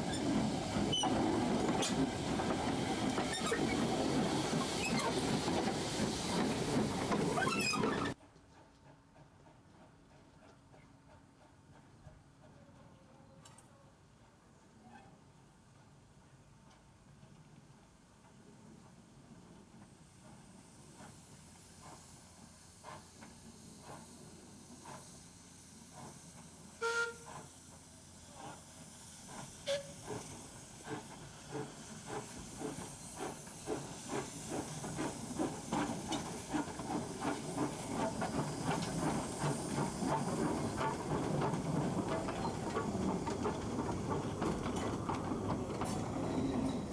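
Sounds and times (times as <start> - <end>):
steam hissing: 0.0 - 8.2, 18.1 - 46.9
steam locomotive chuffing: 0.0 - 13.0, 15.8 - 46.9
steam whistle toot: 26.8 - 27.4, 29.6 - 30.1.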